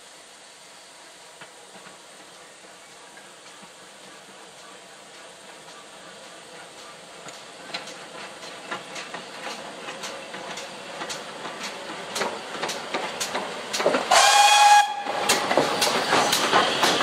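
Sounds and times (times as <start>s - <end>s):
steam locomotive exhaust beats: 0.0s - 17.0s
steam locomotive whistle blast: 14.1s - 15.4s.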